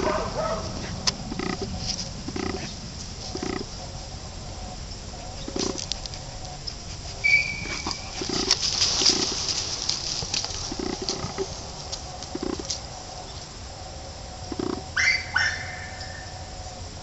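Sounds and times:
leaves rustling: 0.0 - 14.0
dog snuffling: 5.1 - 12.8.

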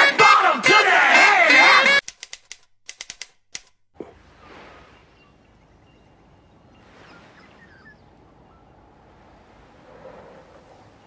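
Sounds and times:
faint bird chirps: 4.8 - 8.9.

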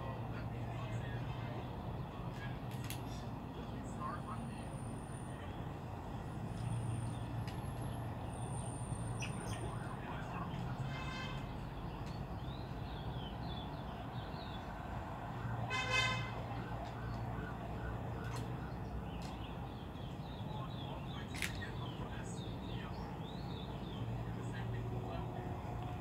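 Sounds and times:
distant traffic hum: 0.0 - 26.0
horn toot: 10.8 - 11.5, 15.7 - 16.4.

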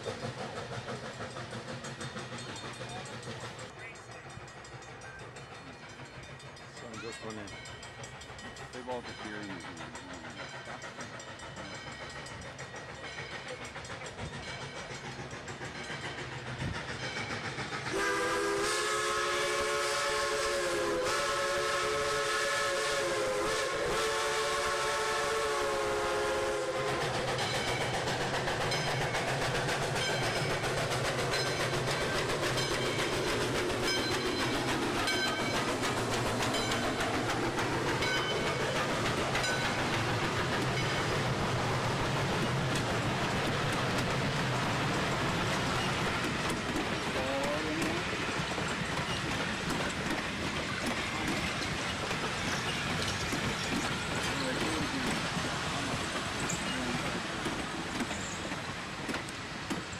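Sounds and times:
wheels clicking over rail joints: 0.0 - 23.9, 24.5 - 59.9
steam locomotive approaching: 0.0 - 59.9
train rumbling past: 0.0 - 59.9
chime steam whistle blast: 16.6 - 29.1.

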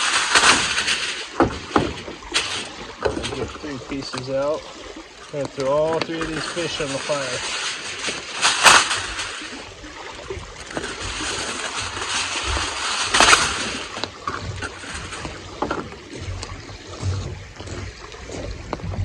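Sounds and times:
foil ripping: 0.0 - 3.4, 6.2 - 9.6, 10.7 - 15.3
aluminum foil crinkling: 0.0 - 3.6, 5.4 - 9.6, 10.6 - 15.3.

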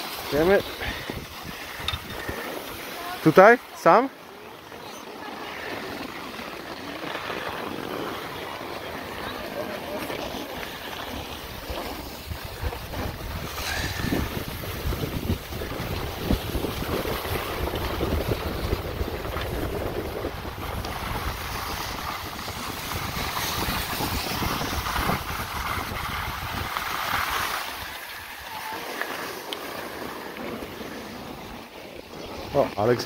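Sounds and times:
skis scraping over snow: 0.0 - 33.0
wind buffeting microphone: 0.4 - 3.2, 7.1 - 28.8.

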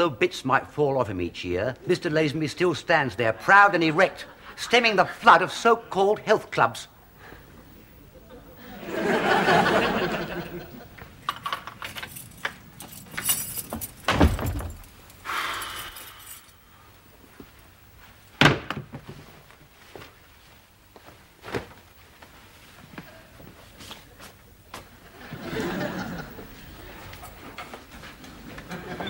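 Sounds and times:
keys jangling: 11.3 - 16.6
door opening and shutting: 13.0 - 15.0
heavy door thud: 14.0 - 14.9.

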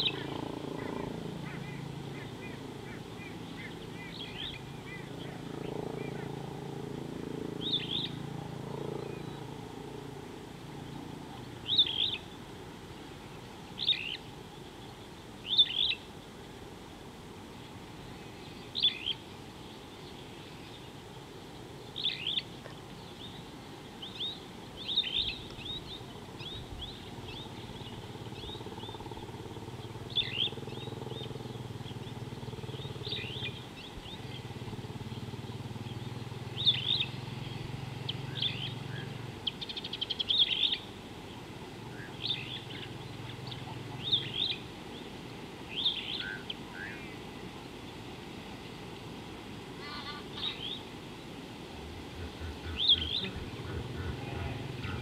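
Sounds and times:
bird chirping: 0.0 - 6.4, 7.6 - 8.2, 10.8 - 12.4, 13.8 - 16.1, 21.8 - 41.4, 42.0 - 45.1, 51.8 - 55.0
low outdoor hum: 0.0 - 55.0.

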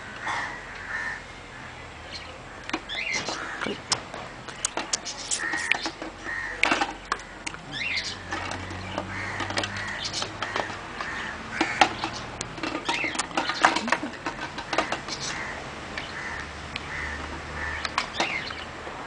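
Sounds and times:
crows cawing: 0.0 - 1.7, 2.5 - 3.9, 5.4 - 12.2, 14.5 - 18.4
sharp clicks and knocks: 2.7 - 7.6, 8.3 - 15.3, 15.9 - 18.6.

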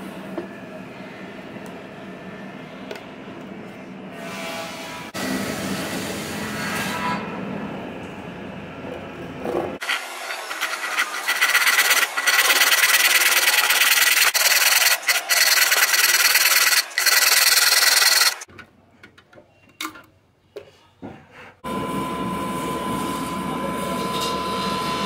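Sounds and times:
saw cutting wood: 9.8 - 18.5.

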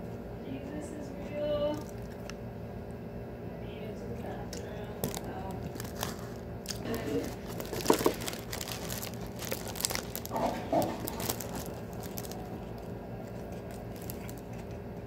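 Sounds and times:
man chewing food: 1.8 - 2.4, 5.0 - 15.0.

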